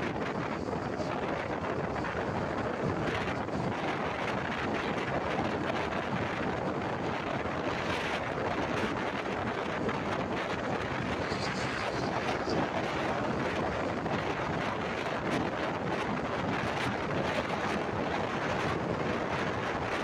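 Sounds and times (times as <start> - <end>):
motorbike riding at speed: 0.0 - 20.0
wind rush over microphone: 0.0 - 20.0
scooter passing: 9.9 - 14.5.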